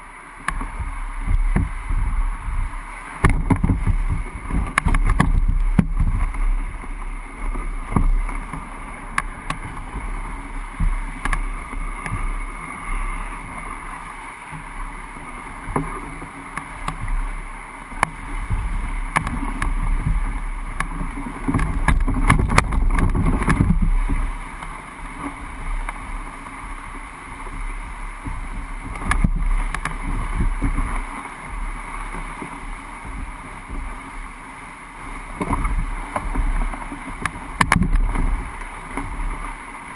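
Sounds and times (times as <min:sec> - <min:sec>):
canoe dragged over ground: 0:00.0 - 0:39.9.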